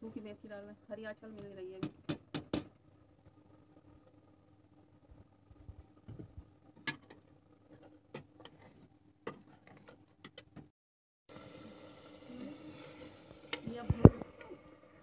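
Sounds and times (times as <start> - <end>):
curry sizzling: 11.3 - 15.0.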